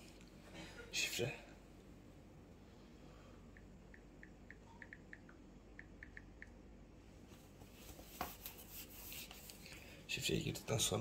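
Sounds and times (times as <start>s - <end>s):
rustling handling noise: 7.2s - 10.0s.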